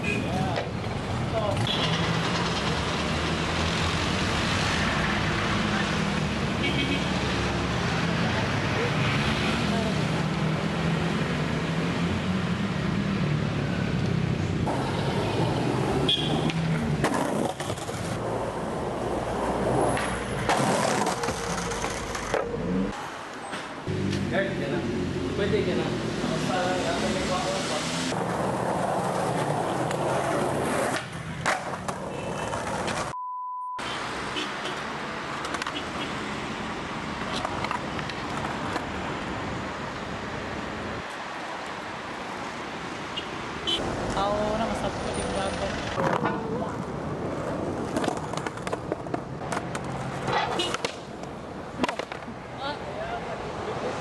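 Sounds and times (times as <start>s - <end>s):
street noise: 0.0s - 54.0s
skateboard rolling on concrete: 14.0s - 24.2s, 28.1s - 33.2s, 34.8s - 36.0s, 36.6s - 42.9s, 43.8s - 52.5s
skateboard clacking on ground: 20.0s - 22.6s, 35.3s - 35.9s, 37.2s - 38.9s, 46.0s - 46.9s, 47.8s - 52.4s
steady beep: 33.2s - 33.8s.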